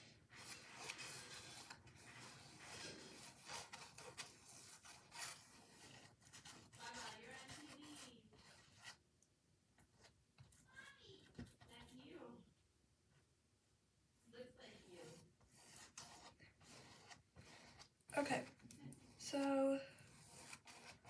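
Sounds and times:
paintbrush scrubbing on canvas: 0.0 - 9.0, 14.6 - 21.0.

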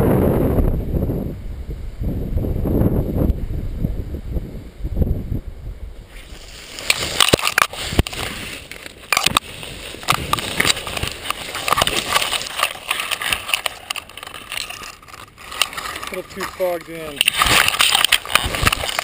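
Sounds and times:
wind on microphone: 0.0 - 19.0
twigs crackling and snapping: 6.1 - 19.0.

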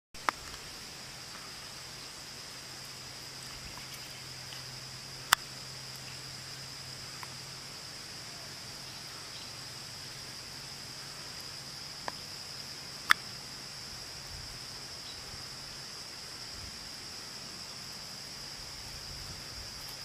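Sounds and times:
insect chirring: 0.2 - 20.0.

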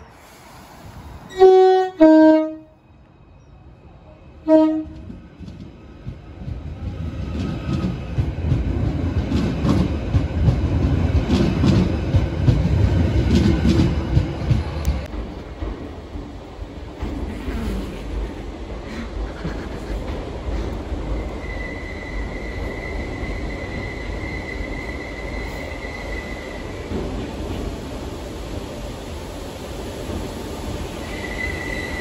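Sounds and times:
electric train passing rumble: 0.0 - 32.0
train horn short low toot: 1.3 - 2.7, 4.4 - 5.1
train two-tone horn: 1.3 - 2.8, 4.4 - 5.1.

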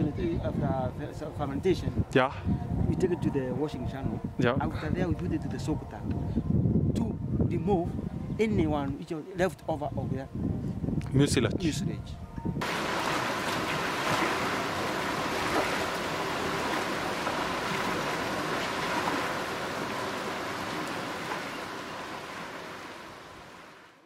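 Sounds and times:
water running over coffee beans: 12.6 - 22.8.

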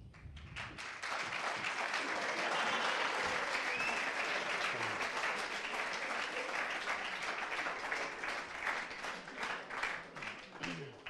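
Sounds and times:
audience applauding: 0.6 - 11.0.

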